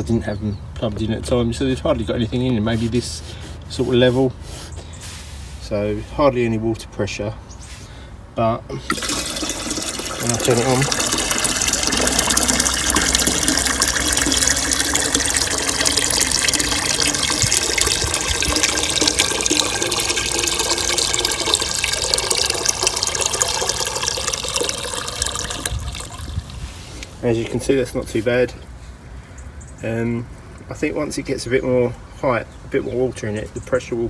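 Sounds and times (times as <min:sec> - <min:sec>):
water pouring into watering can: 0:08.8 - 0:27.7.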